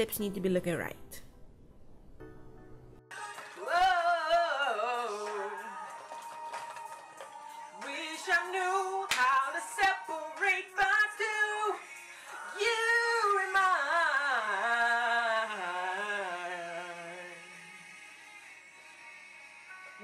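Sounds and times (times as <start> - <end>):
woman singing unaccompanied: 3.3 - 6.9, 7.8 - 11.8, 12.4 - 17.4.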